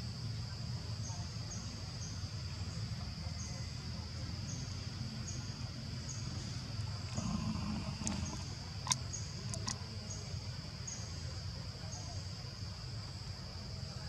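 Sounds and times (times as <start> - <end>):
insect chirp: 0.0 - 14.0
insects buzzing: 0.0 - 14.0
sharp clicks: 8.0 - 9.8.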